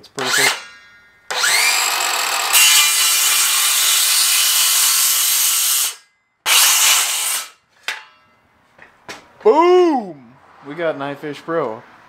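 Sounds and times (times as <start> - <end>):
circular saw cutting wood: 0.0 - 7.6.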